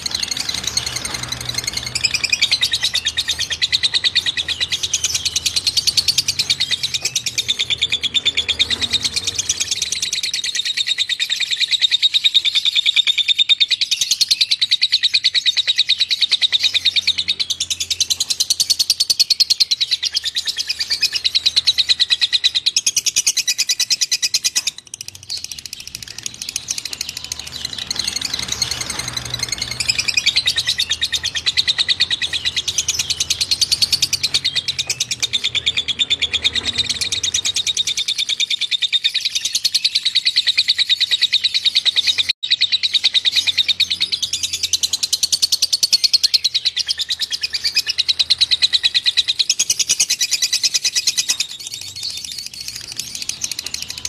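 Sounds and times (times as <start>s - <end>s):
songbird chattering trill: 0.0s - 54.0s.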